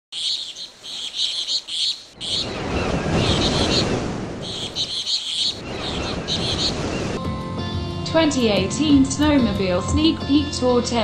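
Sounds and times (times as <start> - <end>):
small birds chirping: 0.1 - 7.2.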